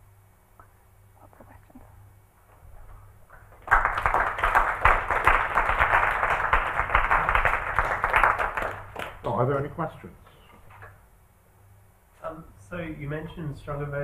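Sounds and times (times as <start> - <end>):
audience applauding: 3.3 - 9.5.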